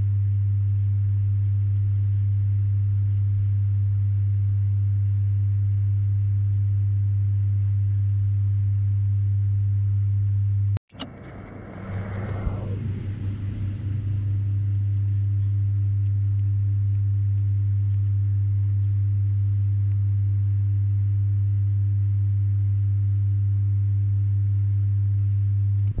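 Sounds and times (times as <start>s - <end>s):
loud low hum: 2.5s - 21.6s.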